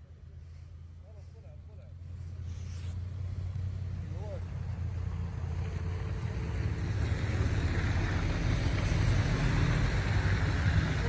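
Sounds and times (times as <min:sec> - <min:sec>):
steady low traffic rumble: 0:00.0 - 0:11.0
tyre hiss on slushy road: 0:00.2 - 0:03.5.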